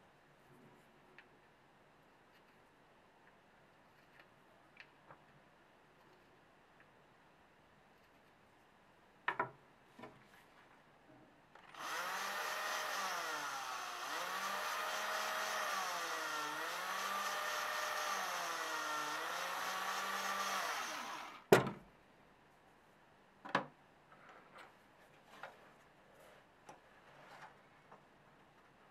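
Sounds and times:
cordless drill drilling wood: 11.7 - 21.5.

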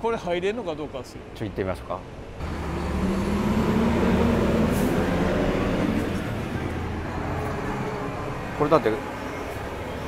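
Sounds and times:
vehicle engine droning: 2.4 - 10.0.

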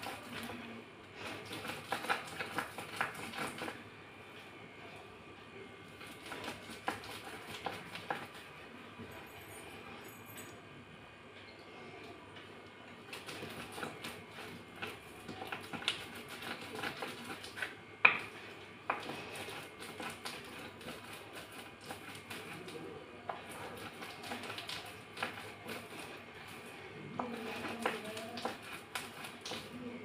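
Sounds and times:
rolling pin crushing grit on stone: 1.2 - 3.8, 6.0 - 8.4, 13.1 - 29.7.

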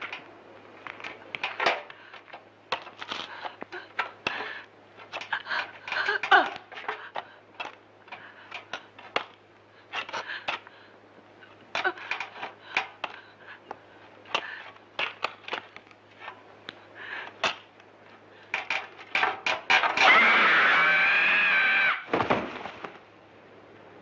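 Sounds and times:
woman screaming: 20.0 - 22.1
heavy body thud: 22.1 - 22.8.

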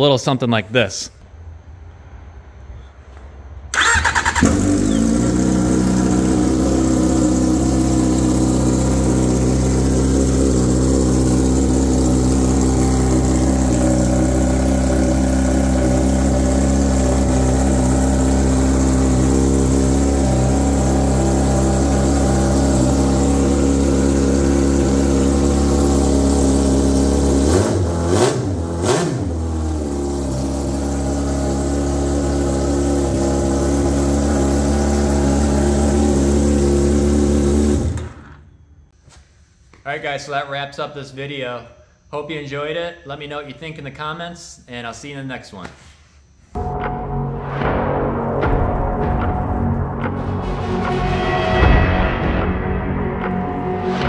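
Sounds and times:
loud snowmobile engine revving: 4.2 - 38.2.

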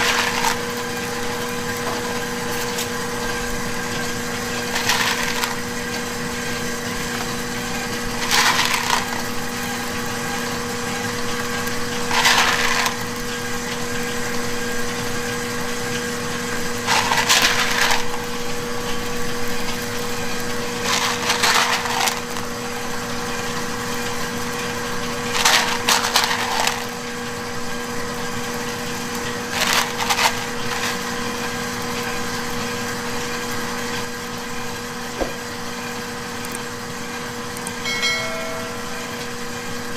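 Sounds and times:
chocolate chips rattling: 0.0 - 1.0, 4.5 - 6.0, 7.2 - 9.8, 11.9 - 13.1, 16.8 - 18.6, 20.6 - 22.9, 25.1 - 27.2, 29.3 - 31.4
steady hum: 37.7 - 39.9.

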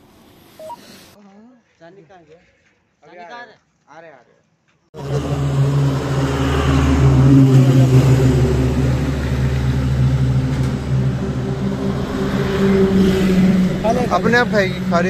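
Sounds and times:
engine running: 5.0 - 15.0.

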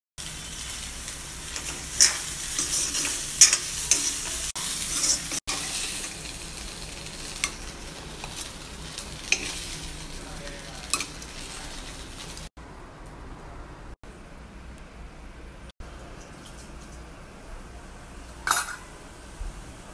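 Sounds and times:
food sizzling in a pan: 0.2 - 12.5
metal spatula scraping a pan: 1.5 - 6.2, 9.2 - 9.8
metal clinking on pan: 18.4 - 18.9.

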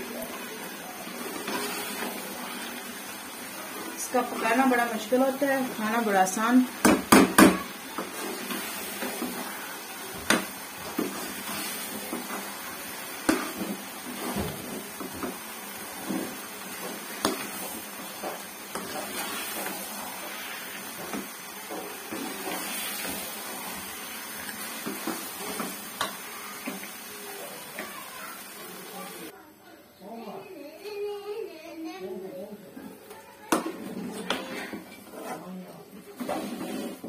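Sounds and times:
spoon scraping metal pan: 1.2 - 2.2, 16.8 - 23.3, 36.2 - 37.0
spoon clacking against pan: 16.8 - 19.8.

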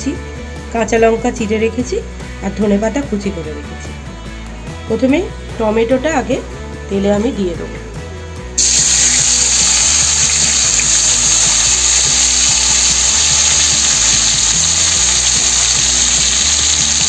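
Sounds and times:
tomatoes sizzling in hot oil: 8.6 - 17.0.

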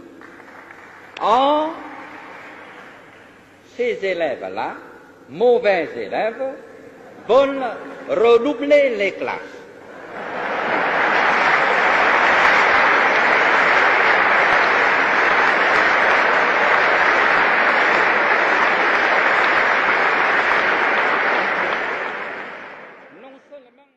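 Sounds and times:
audience applauding: 0.0 - 3.4, 10.0 - 23.2.

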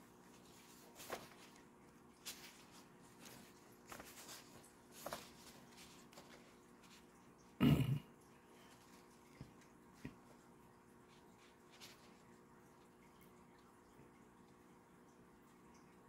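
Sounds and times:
soft rustling: 0.0 - 7.4, 8.6 - 12.6
faint steady hum: 0.0 - 16.0.

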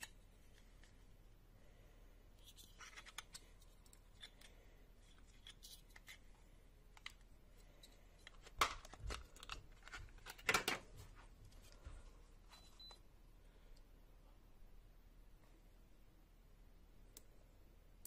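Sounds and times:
plastic parts clicking and rustling: 2.4 - 11.0.

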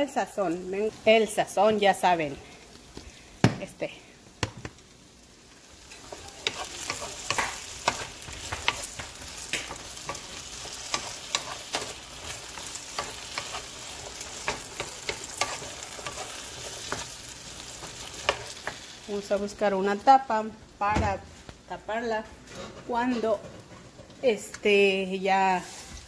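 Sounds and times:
potatoes and onion sizzling in pan: 0.0 - 26.0
wooden spoon knocking and scraping pan: 6.0 - 17.1.

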